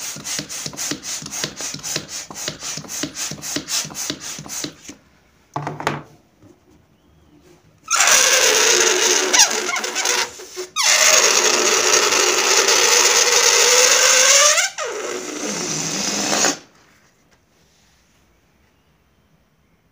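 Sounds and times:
air squealing out of balloon: 7.9s - 16.8s.

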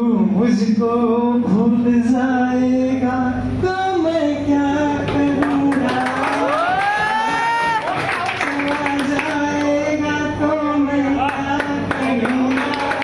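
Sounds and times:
man singing slowly: 0.0s - 7.1s, 8.3s - 13.0s
people clapping: 5.1s - 9.9s, 11.2s - 13.0s.

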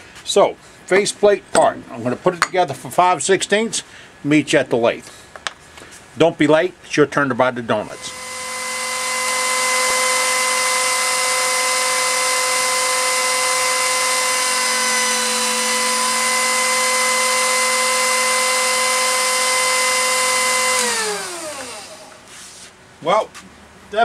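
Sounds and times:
lathe spinning down: 7.9s - 22.2s
lathe motor whine: 7.9s - 22.4s.

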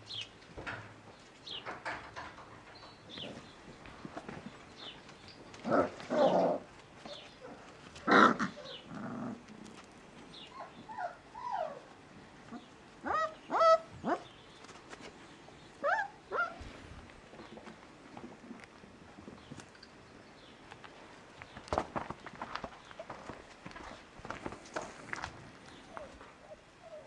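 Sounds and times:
puppies yapping and growling: 10.4s - 14.2s, 15.8s - 16.7s, 25.9s - 27.0s
puppies whining yelps: 10.5s - 11.9s, 13.0s - 14.2s, 15.8s - 16.6s, 25.9s - 27.0s.

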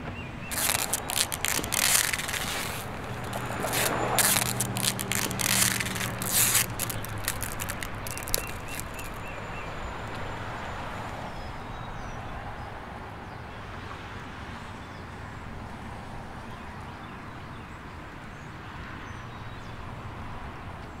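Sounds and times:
loud crackling and rustling: 0.5s - 9.3s
distant traffic hush: 0.5s - 11.5s.

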